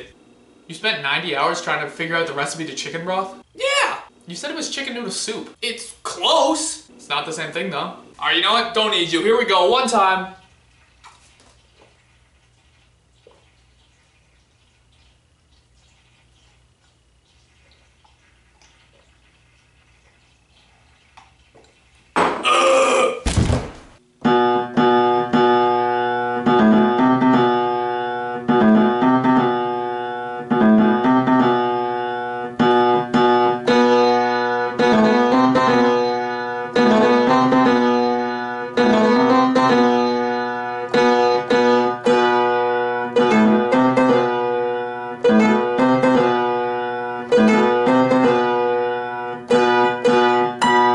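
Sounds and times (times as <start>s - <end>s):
thump: 23.2s - 24.0s
piano playing chords: 24.2s - 50.9s.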